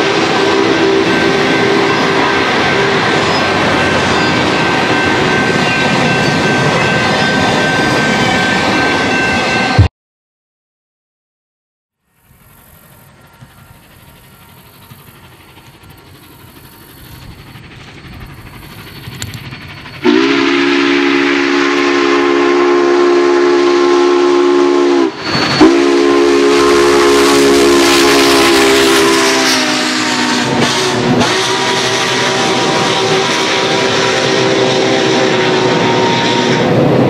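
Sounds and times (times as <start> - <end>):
steam locomotive whistle: 0.0 - 9.9, 20.0 - 37.0
train passing at speed: 0.0 - 9.9, 12.0 - 37.0.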